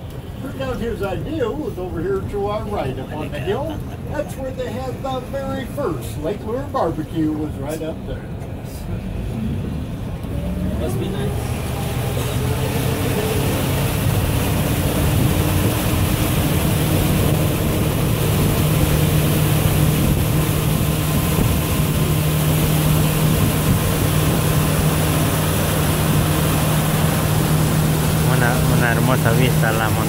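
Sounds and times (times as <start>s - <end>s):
boat engine humming: 0.0s - 30.0s
wind and water rushing: 8.8s - 30.0s.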